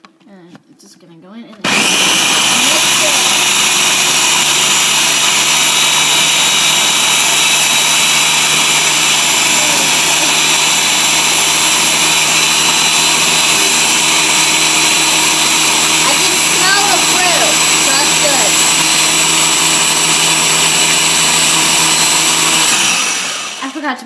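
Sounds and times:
blender motor whining: 1.6 - 23.8.

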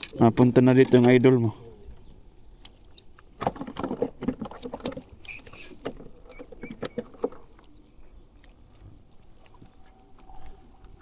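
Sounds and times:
fishing tackle clicks and knocks: 0.0 - 1.4, 2.0 - 7.7.

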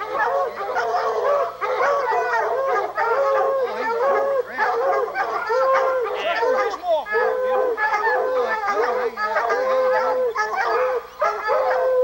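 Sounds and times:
hounds baying: 0.0 - 12.0.

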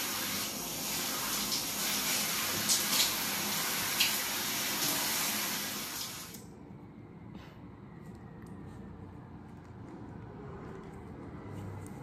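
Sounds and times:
shower spraying water on hair: 0.0 - 6.4.

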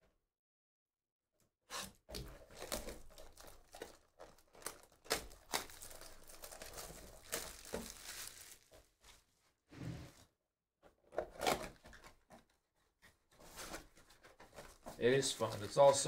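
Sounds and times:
plastic shrink-wrap tearing and crinkling: 2.1 - 9.2, 14.5 - 16.0.

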